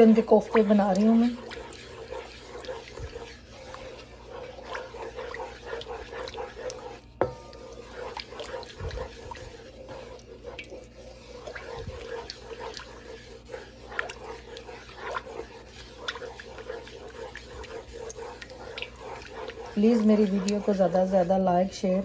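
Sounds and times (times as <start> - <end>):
spatula scraping pan: 0.0 - 22.0.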